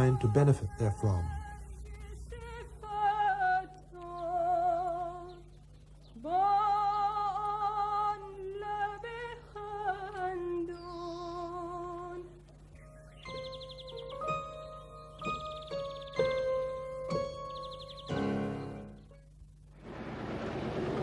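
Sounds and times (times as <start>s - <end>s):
woman singing unaccompanied: 0.0s - 12.6s.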